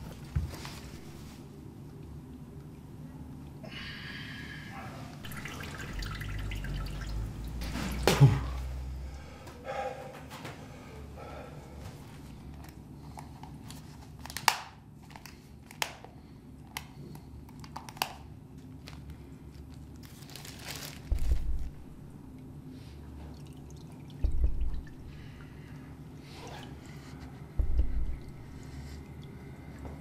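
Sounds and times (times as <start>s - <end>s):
low hum: 5.2s - 12.8s, 21.0s - 30.0s
deep loud thuds: 21.1s - 22.0s, 24.2s - 25.1s, 27.6s - 28.5s.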